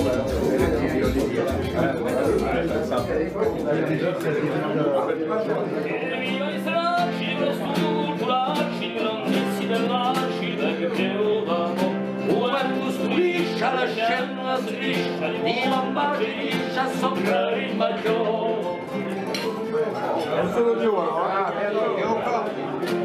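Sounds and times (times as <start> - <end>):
plucked acoustic guitar: 0.0 - 23.0
men singing together: 5.9 - 19.2.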